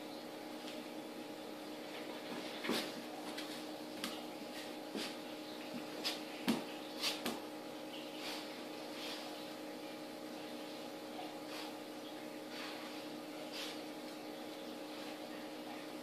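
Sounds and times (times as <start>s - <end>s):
low room hum: 0.0s - 16.0s
animals scrabbling on tiled floor: 1.7s - 9.7s, 11.2s - 16.0s.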